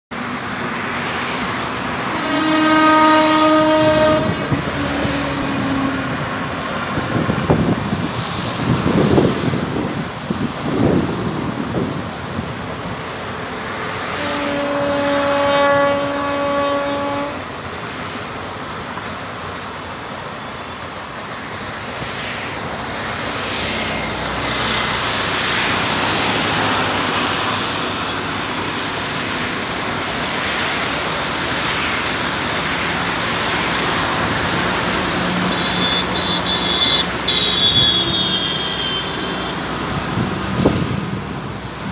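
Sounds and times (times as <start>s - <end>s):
train coaches running on rails: 0.1s - 41.9s
train horn blasts: 2.1s - 6.0s, 14.1s - 17.5s, 35.3s - 39.6s.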